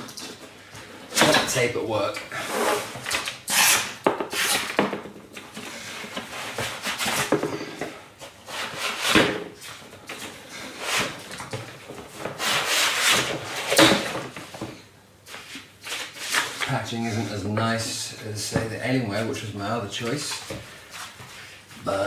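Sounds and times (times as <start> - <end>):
cardboard scraping and rubbing: 10.8 - 13.9.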